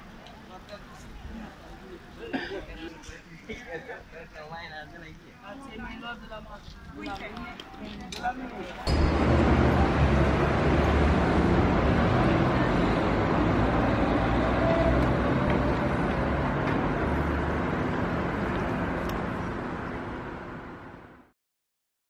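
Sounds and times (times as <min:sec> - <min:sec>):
city street traffic: 0:05.3 - 0:21.3
bus engine rumbling: 0:08.6 - 0:21.3.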